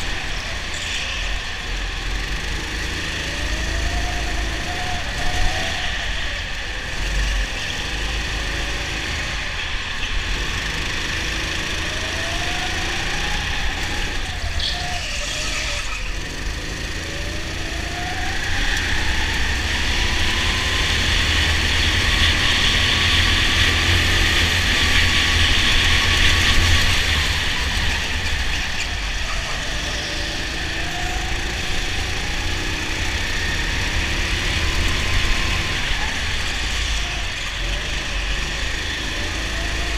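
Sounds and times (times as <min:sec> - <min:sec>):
go-kart motor revving: 0:00.0 - 0:39.9.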